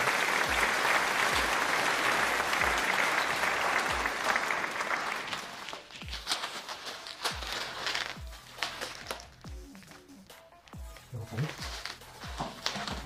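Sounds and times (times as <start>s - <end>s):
background music with low beat: 0.0s - 4.4s, 5.8s - 13.0s
bubble wrap crinkling: 4.2s - 13.0s.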